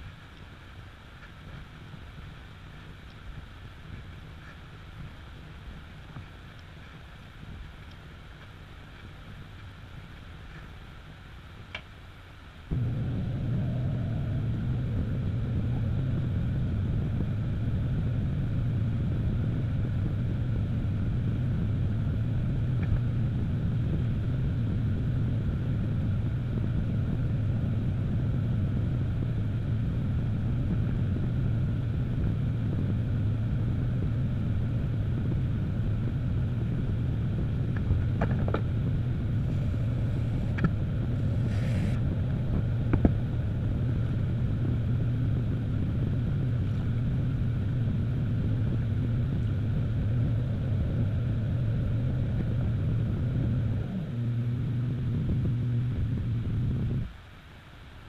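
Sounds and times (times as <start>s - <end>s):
potter's wheel motor humming: 12.7s - 57.1s.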